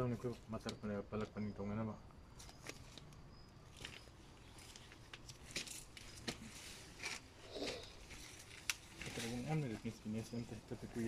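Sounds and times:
leaves rustling: 2.4 - 11.0
greens snapping and tearing: 4.7 - 9.6.

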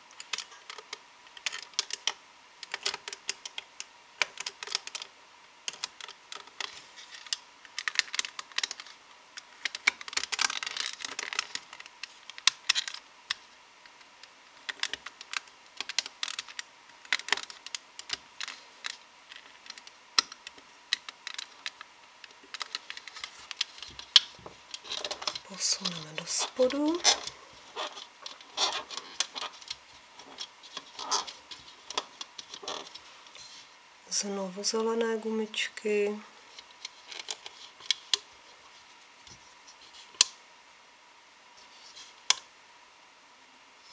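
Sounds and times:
loom hook clicking on pegs: 0.1 - 5.1
scratchy rubber band scraping: 22.5 - 33.7.

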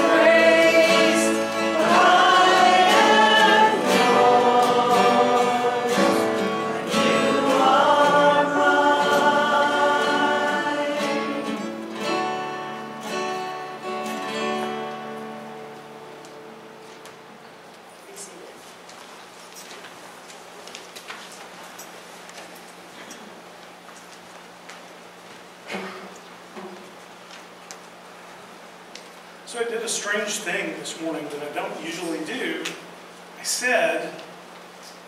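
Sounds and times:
group singing worship song: 0.0 - 12.0.

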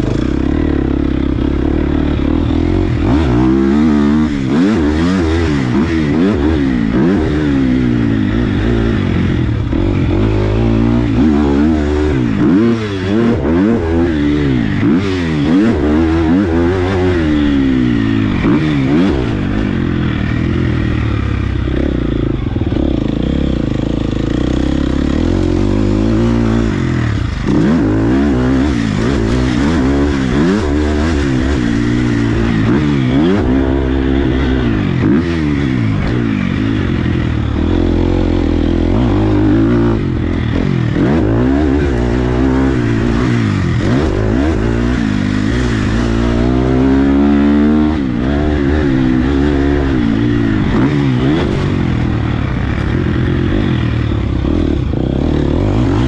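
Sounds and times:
motocross bike engine revving: 0.0 - 56.0.

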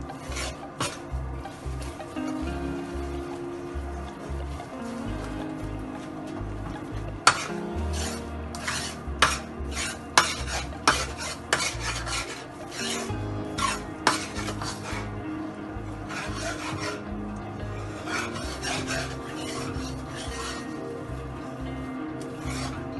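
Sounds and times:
spatula scraping steel pan: 7.3 - 15.1, 16.1 - 17.1, 18.0 - 20.8.

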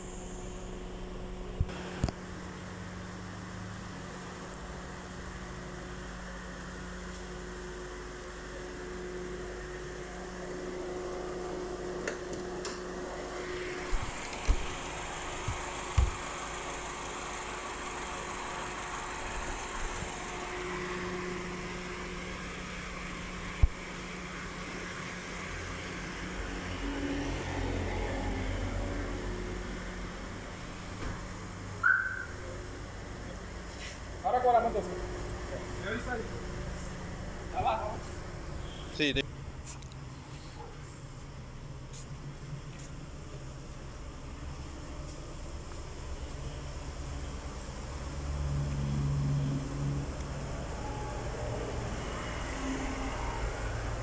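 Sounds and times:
car engine idling: 0.0 - 26.8, 27.7 - 39.6.

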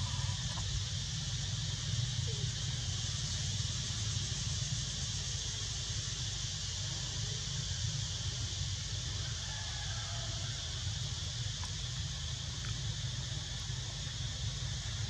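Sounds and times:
constant low rumble: 0.0 - 15.0.

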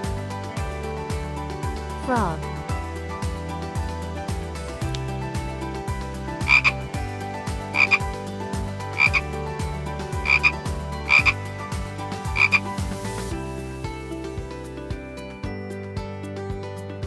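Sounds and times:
frog croaking: 6.4 - 6.8, 7.6 - 8.1, 8.8 - 9.4, 10.2 - 11.5, 12.2 - 12.8.

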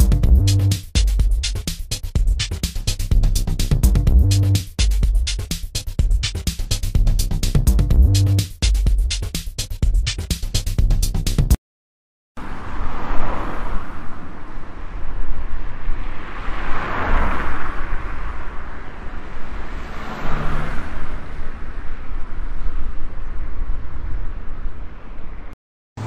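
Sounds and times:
electronic music: 0.0 - 11.6
road traffic rushing: 12.4 - 22.5
vehicles passing by: 12.4 - 24.0.

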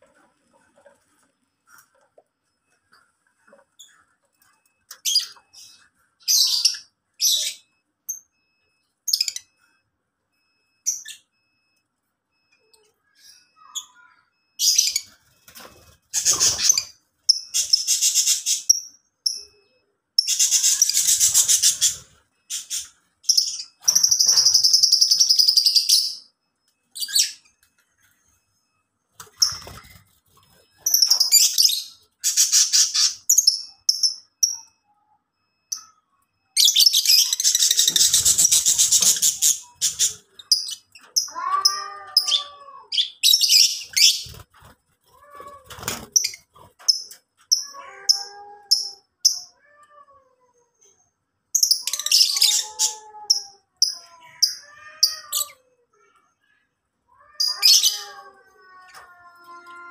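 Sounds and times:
lovebirds chattering: 20.2 - 26.1, 36.6 - 41.5.

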